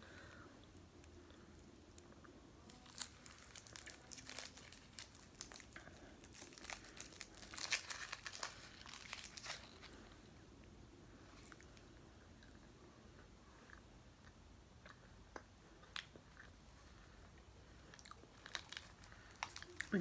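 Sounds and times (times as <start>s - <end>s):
candy wrapper crinkling: 1.9s - 10.1s, 18.2s - 20.0s.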